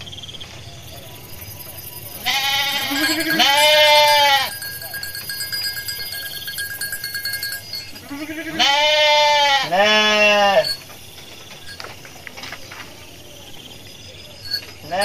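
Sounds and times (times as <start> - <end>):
sheep bleating: 2.2 - 4.7, 8.0 - 10.8.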